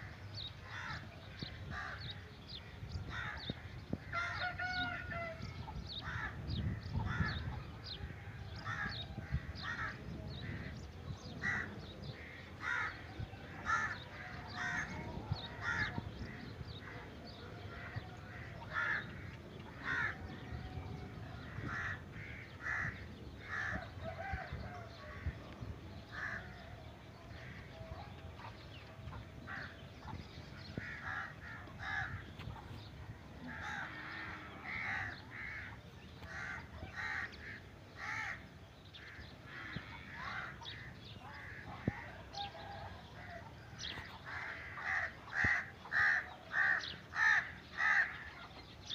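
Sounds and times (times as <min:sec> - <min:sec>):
crows cawing: 0:00.6 - 0:02.1, 0:03.1 - 0:10.7, 0:11.4 - 0:17.0, 0:17.7 - 0:20.7, 0:21.3 - 0:26.8, 0:30.6 - 0:32.4, 0:33.4 - 0:48.6.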